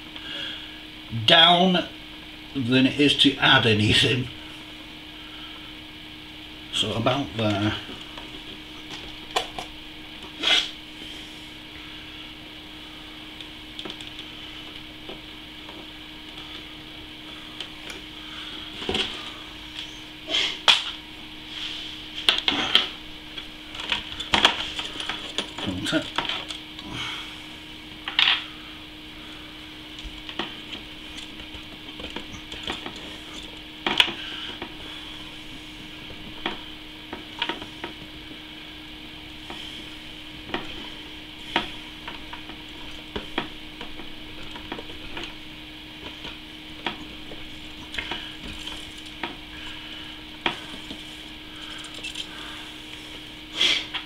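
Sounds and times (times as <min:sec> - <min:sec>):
steady low hum: 0:00.0 - 0:54.0
small clicks and knocks of parts: 0:13.4 - 0:16.6, 0:22.2 - 0:26.9, 0:30.0 - 0:34.7, 0:51.6 - 0:52.4.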